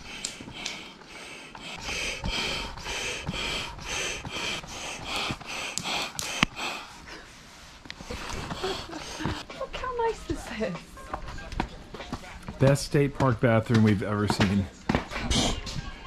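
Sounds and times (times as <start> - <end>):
sharp clicks: 5.2 - 6.6.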